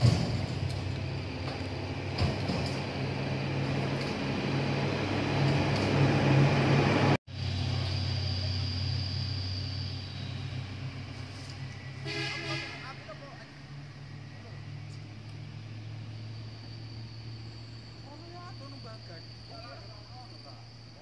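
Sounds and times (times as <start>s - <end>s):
road traffic noise: 0.0s - 21.0s
vehicle engine running: 0.0s - 21.0s.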